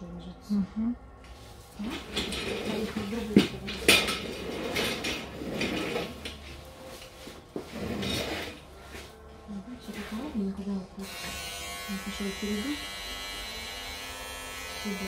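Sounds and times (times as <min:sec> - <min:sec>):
metal tools clinking and clattering: 0:01.8 - 0:06.5.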